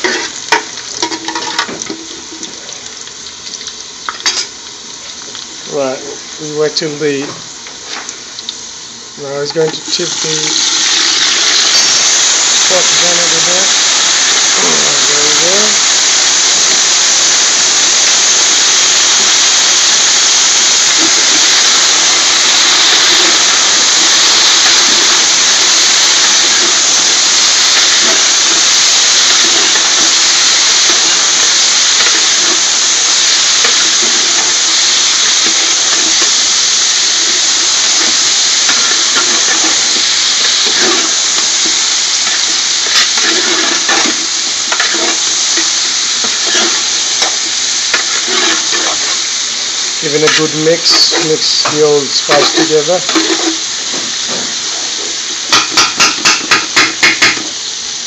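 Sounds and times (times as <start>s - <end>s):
metal spoon scraping a pot: 0.0s - 2.0s, 42.2s - 45.2s, 46.2s - 46.8s, 47.9s - 49.2s, 52.3s - 53.6s
peppers sizzling in hot oil: 0.0s - 58.0s.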